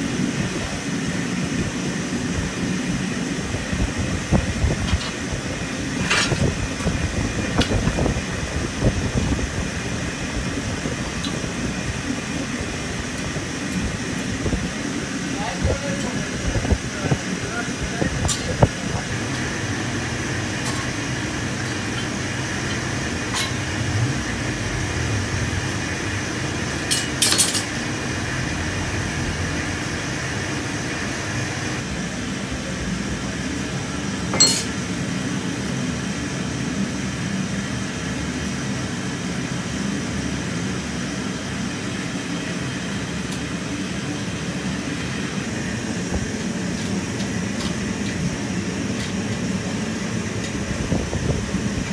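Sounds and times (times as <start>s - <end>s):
machine hum: 0.0s - 51.9s
metal tool clinking on steel: 34.3s - 34.8s.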